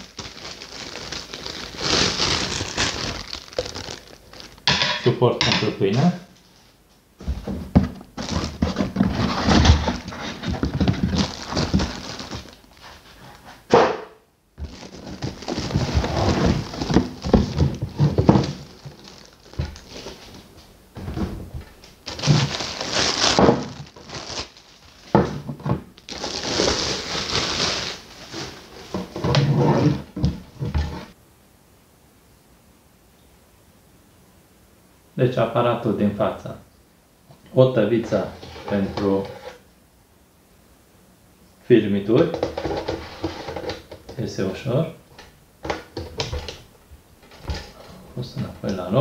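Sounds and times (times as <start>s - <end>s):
plastic wrap crinkling: 0.0s - 5.2s, 8.1s - 13.4s, 14.6s - 29.5s
cardboard scraping: 7.2s - 13.7s, 14.6s - 25.3s, 26.1s - 31.2s, 38.1s - 39.6s, 42.4s - 43.9s.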